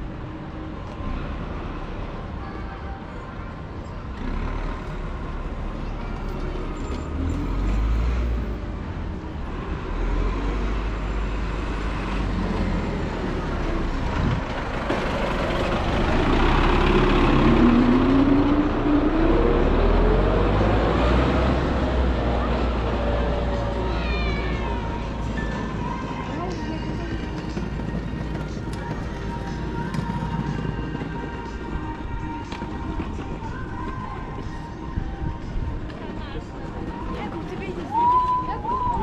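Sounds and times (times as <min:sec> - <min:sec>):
rising engine whine: 0:04.8 - 0:35.8
vehicle engine running: 0:12.4 - 0:35.4.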